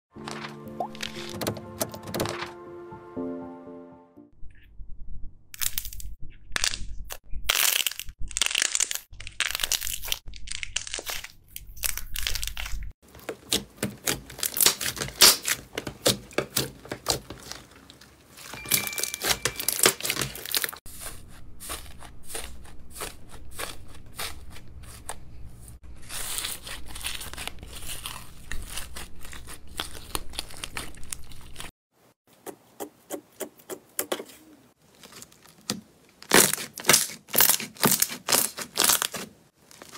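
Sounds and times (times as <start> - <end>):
slime crackling and popping: 5.6 - 20.8, 35.0 - 39.9.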